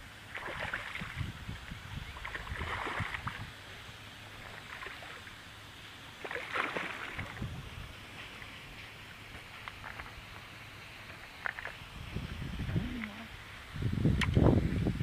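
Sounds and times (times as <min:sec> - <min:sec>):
fish splashing at water surface: 0:00.3 - 0:01.3, 0:02.2 - 0:03.6, 0:06.1 - 0:07.5.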